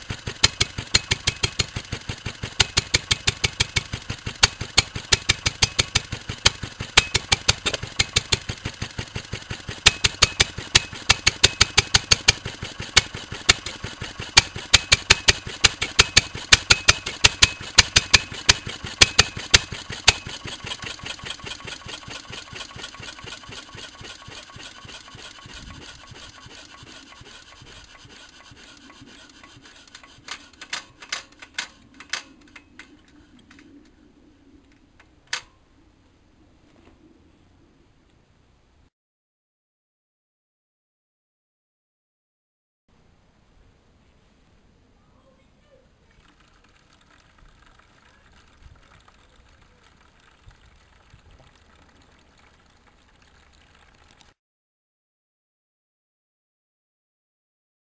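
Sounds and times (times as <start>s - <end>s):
petrol engine slowing down: 0.0s - 30.6s, 46.2s - 54.3s
faint outdoor background hiss: 0.0s - 38.9s, 42.9s - 54.4s
sharp clicks: 0.1s - 26.9s, 27.9s - 33.9s, 46.1s - 54.4s.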